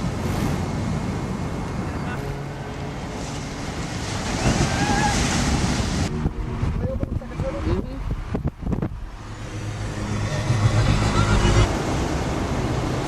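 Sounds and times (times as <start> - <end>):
waves breaking on rocks: 2.9 - 6.1
wind buffeting microphone: 3.0 - 13.0.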